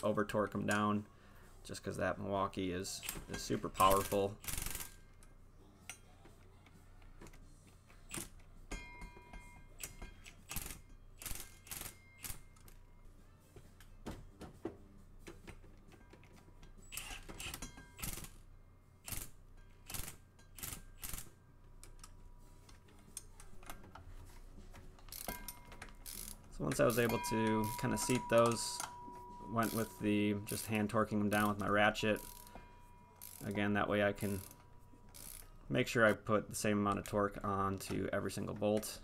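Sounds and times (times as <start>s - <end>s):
ratchet and wrench clicking: 3.0s - 5.3s, 9.8s - 12.7s, 16.8s - 18.4s, 19.0s - 22.1s, 25.1s - 28.9s, 29.6s - 32.6s, 33.2s - 33.6s, 34.2s - 35.6s.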